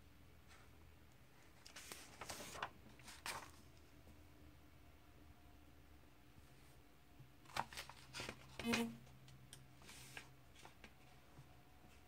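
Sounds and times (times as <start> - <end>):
low room hum: 0.0 - 12.0
paper pages rustling: 1.4 - 3.9, 7.4 - 8.9, 9.8 - 11.2.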